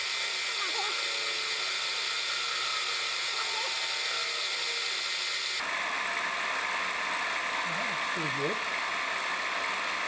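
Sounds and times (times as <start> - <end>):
hiss of metal cutting: 0.0 - 5.6
lathe motor whine: 0.0 - 10.0.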